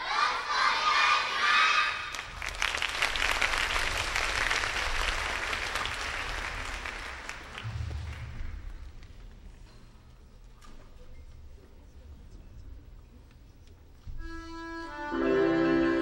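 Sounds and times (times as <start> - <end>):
audience applauding: 2.1 - 9.1.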